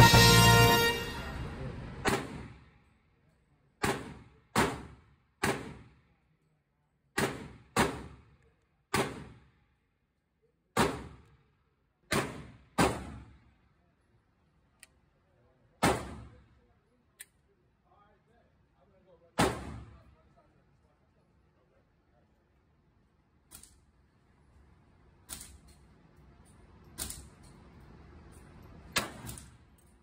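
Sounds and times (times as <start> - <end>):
gunshots echoing indoors: 2.0 - 2.7, 3.8 - 6.0, 8.9 - 9.5, 12.1 - 13.6, 15.8 - 16.5, 19.4 - 20.1, 28.9 - 29.6.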